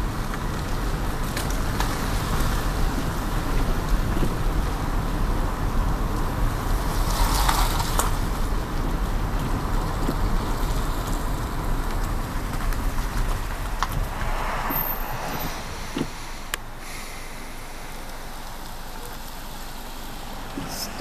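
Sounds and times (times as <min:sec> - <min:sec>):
car road noise: 0:00.0 - 0:21.0
wind rumble: 0:08.1 - 0:19.0.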